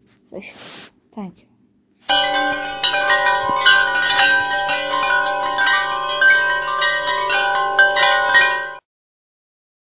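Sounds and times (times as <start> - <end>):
wind chimes ringing: 2.1 - 8.8.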